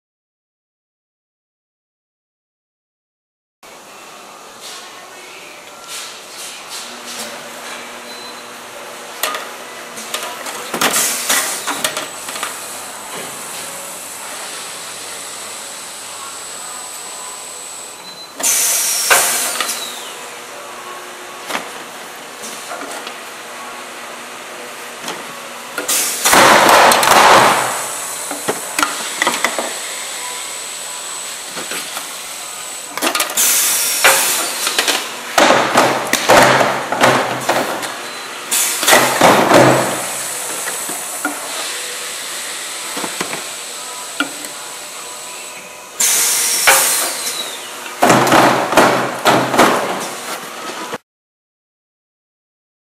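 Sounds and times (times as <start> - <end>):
steady machine hum: 3.6 - 50.7
bottles clinking on conveyor: 9.2 - 13.8, 18.4 - 20.1, 31.4 - 50.9
pneumatic nozzle hissing: 18.4 - 20.0, 33.4 - 34.9, 46.0 - 47.6.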